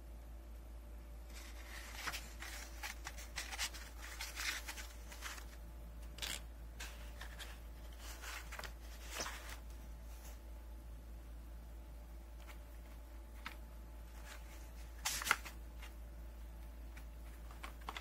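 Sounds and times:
book pages rustling: 1.3s - 10.4s, 12.4s - 16.0s, 16.6s - 18.0s.

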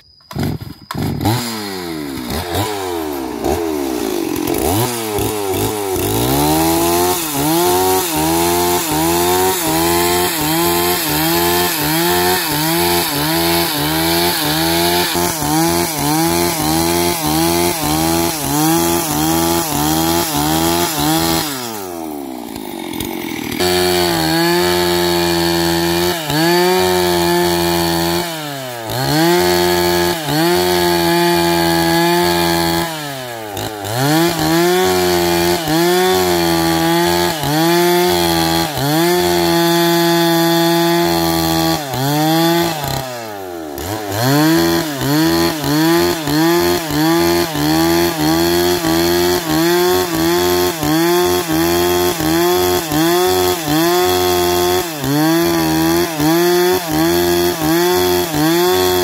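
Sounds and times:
chainsaw cutting into log: 0.0s - 59.0s.

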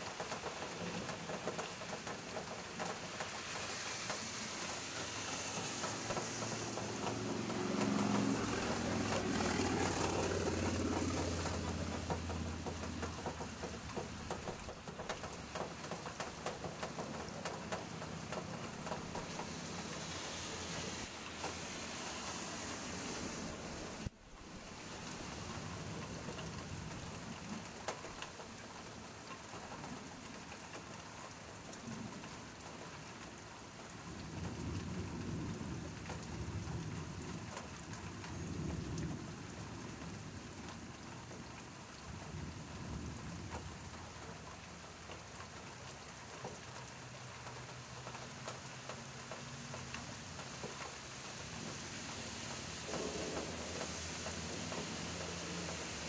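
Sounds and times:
steady rain: 0.0s - 56.0s
low rolls of thunder: 34.1s - 40.7s, 42.0s - 44.4s, 52.8s - 56.0s.

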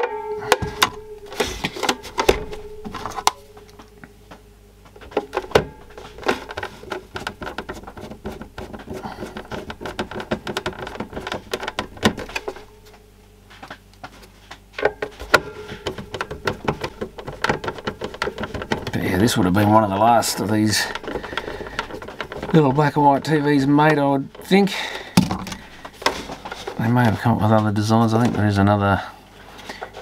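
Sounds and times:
plastic case handling knocks: 0.5s - 3.7s, 5.0s - 12.7s, 14.8s - 26.8s.

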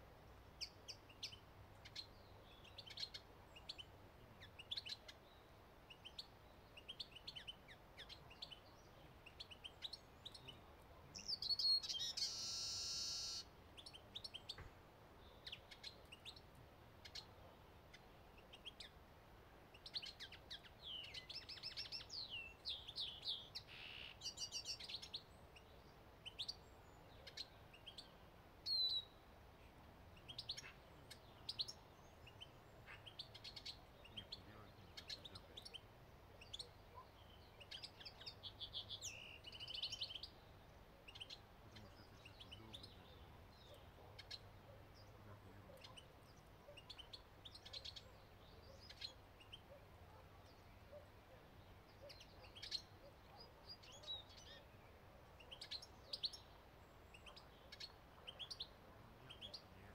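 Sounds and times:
finches chirping: 5.9s - 14.6s, 41.0s - 59.8s.

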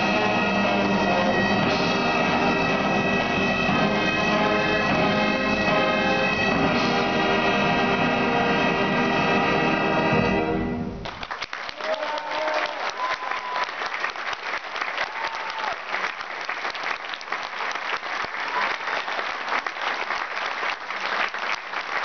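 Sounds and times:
concert audience applauding: 11.0s - 22.0s.

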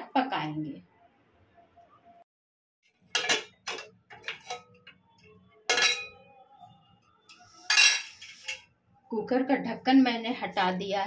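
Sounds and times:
metal lid clanking and scraping: 3.1s - 4.8s, 5.7s - 6.2s.

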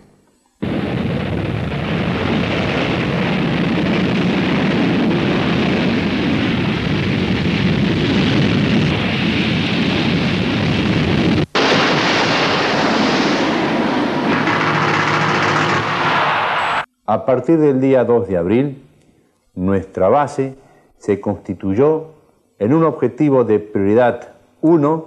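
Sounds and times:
jet engines roaring: 11.5s - 16.9s.

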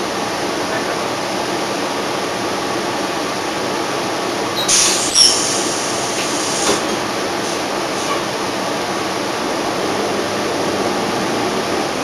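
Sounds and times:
bus engine and road rumble: 0.0s - 12.0s
short high squeal: 4.6s - 5.9s
brief hiss: 4.6s - 6.8s.

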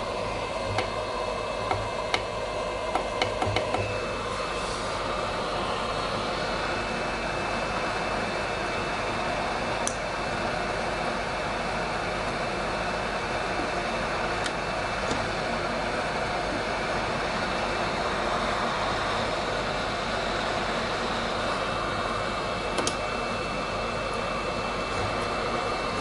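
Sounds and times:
heat gun fan blowing: 0.0s - 26.0s.

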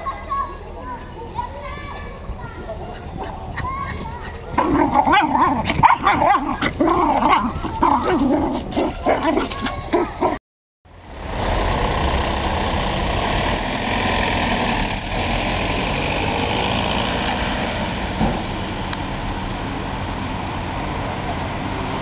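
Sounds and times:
engine rumble: 0.0s - 22.0s
dog barking and whimpering: 4.6s - 10.4s.

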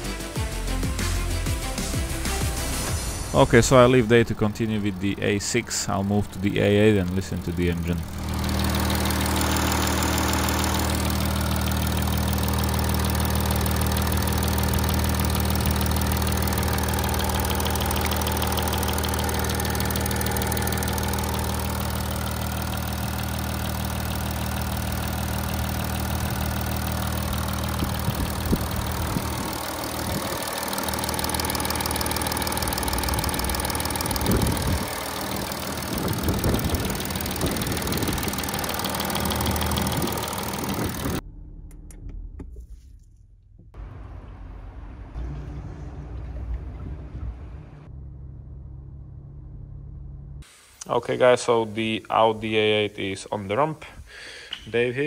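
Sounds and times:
diesel engine idling: 2.9s - 41.2s.

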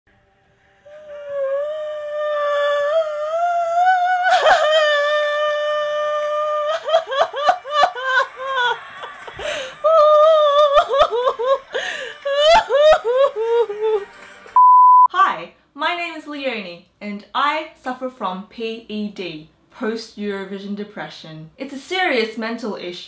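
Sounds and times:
woman wailing: 0.9s - 8.8s, 9.4s - 14.1s
woman sobbing: 0.9s - 14.1s
woman gasping: 9.4s - 10.0s, 11.7s - 12.3s.

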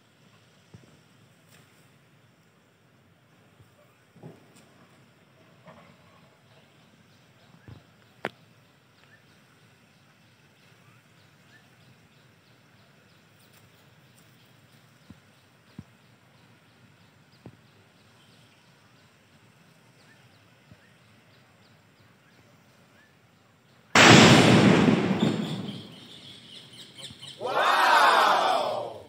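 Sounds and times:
firecracker bang: 24.0s - 26.6s.

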